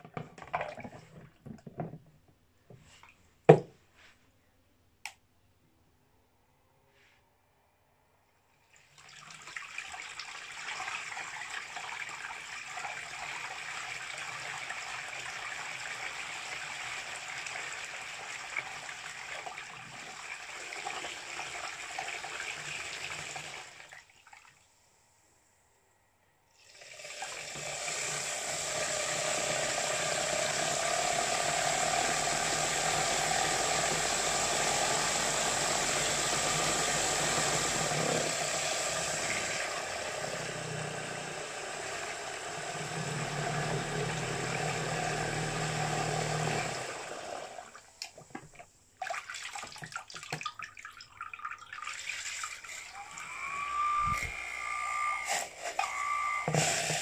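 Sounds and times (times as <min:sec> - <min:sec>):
motor whine: 0:27.6 - 0:47.6, 0:52.8 - 0:57.0
water churning and splashing: 0:49.0 - 0:53.3.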